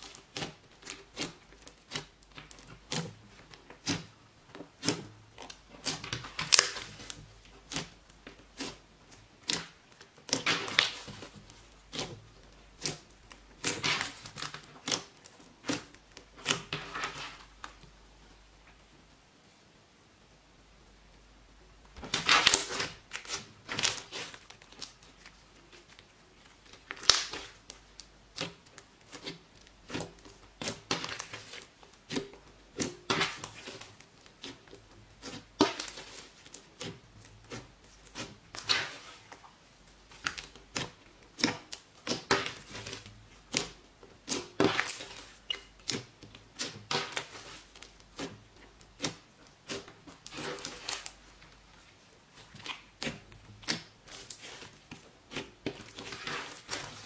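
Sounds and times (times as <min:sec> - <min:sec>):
slime squelches: 0:00.0 - 0:18.4, 0:21.8 - 0:57.0
slime sticky pops and crackles: 0:26.7 - 0:29.3.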